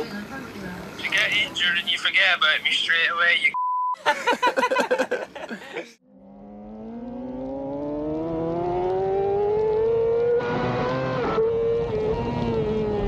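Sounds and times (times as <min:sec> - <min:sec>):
motorcycle engine accelerating: 0:06.0 - 0:13.0.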